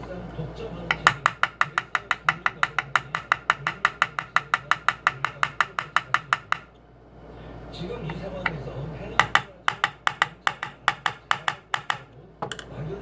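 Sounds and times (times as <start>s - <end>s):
hammer tapping pin into wood: 0.9s - 6.7s, 9.2s - 12.7s.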